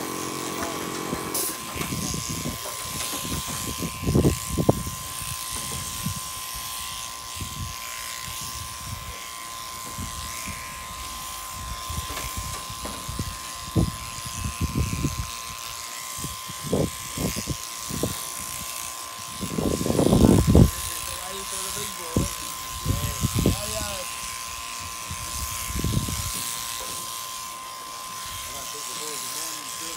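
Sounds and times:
shearing handpiece whining: 0.0s - 29.9s.

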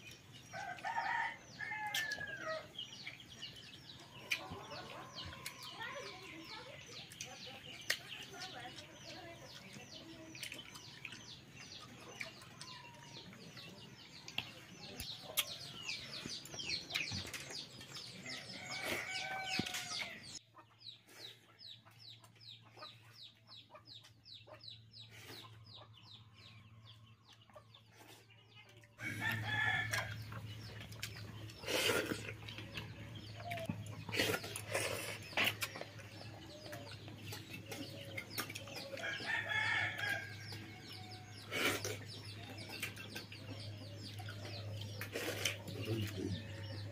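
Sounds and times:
chickens clucking: 0.0s - 46.9s.

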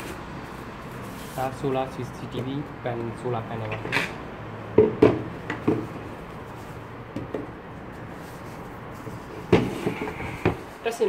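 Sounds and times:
items knocking on wooden table: 4.8s - 5.9s, 7.1s - 7.5s, 9.5s - 10.6s.

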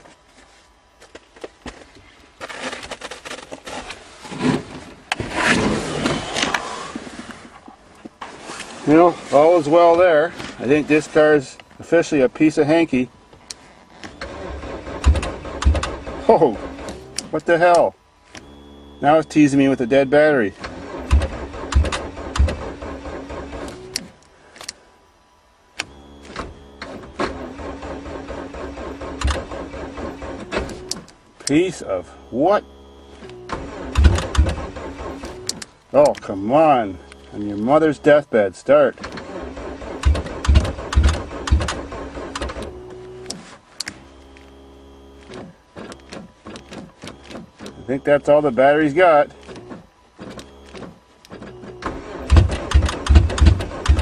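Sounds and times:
car starter motor cranking: 12.9s - 24.2s, 25.8s - 54.0s
starter click: 49.4s - 54.0s.

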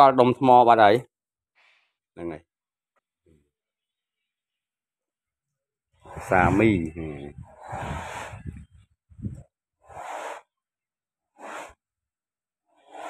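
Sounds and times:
heavy wheezy breathing: 7.5s - 8.6s.

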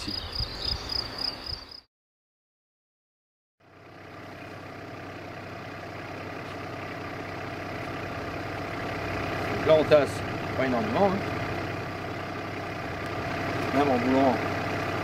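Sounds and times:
crickets chirping: 0.0s - 1.9s
engine idling: 3.6s - 15.0s.

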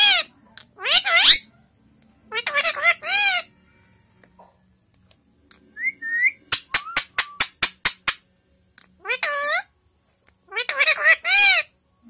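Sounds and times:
parrot squawking: 0.0s - 1.5s, 2.3s - 3.5s, 9.0s - 9.7s, 10.5s - 11.7s
parrot whistle notes: 5.8s - 7.5s.

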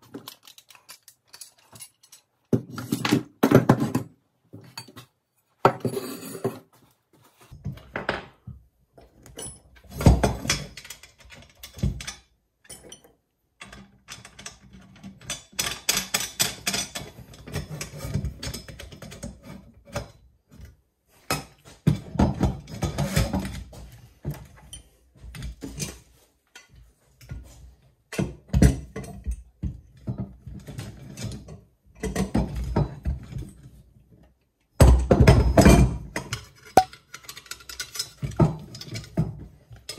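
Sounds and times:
metal parts clinking and rattling: 0.0s - 3.3s, 35.6s - 39.9s.

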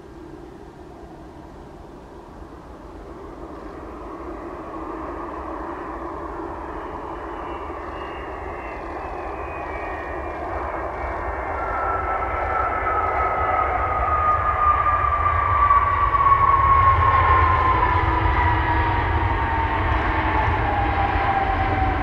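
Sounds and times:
jet engines landing: 0.0s - 22.0s
high whine sliding down: 3.2s - 22.0s.

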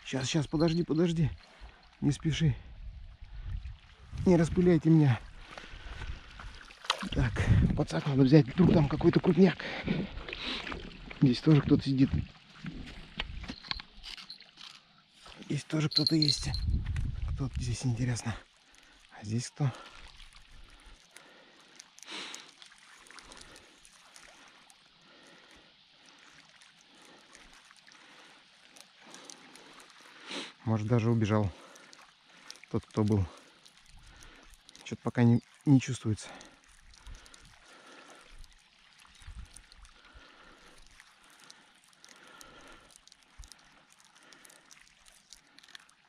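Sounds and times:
water lapping and trickling: 0.0s - 46.0s
fishing line rustling and clicks: 13.1s - 19.1s, 20.0s - 46.0s
breathy rustle: 36.2s - 38.6s, 39.7s - 45.9s.

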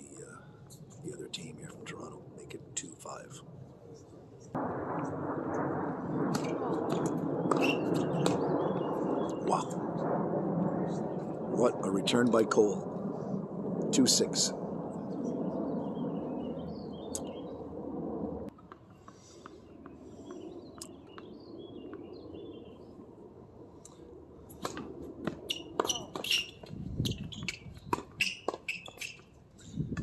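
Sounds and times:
birds chirping: 7.4s - 9.7s, 14.8s - 17.7s, 18.9s - 23.0s.

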